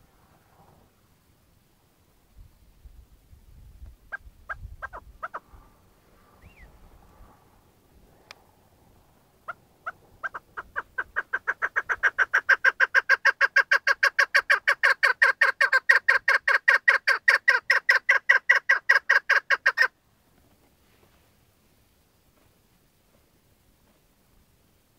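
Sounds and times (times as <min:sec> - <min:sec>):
partridge clucking call: 0:04.1 - 0:05.4, 0:09.5 - 0:19.9.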